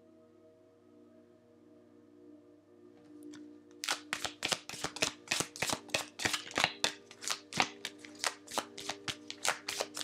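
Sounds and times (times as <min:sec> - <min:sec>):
cards being shuffled: 0:03.8 - 0:10.0.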